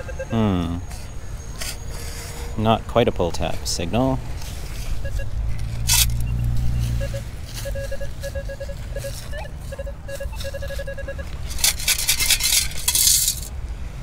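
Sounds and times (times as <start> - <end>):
metal detector beeps: 0.0 - 0.5, 5.0 - 11.6
sand rattling in metal scoop: 11.4 - 13.5.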